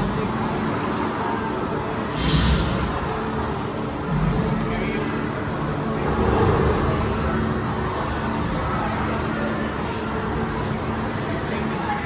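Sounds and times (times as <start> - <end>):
steady rushing rumble: 2.0 - 9.2.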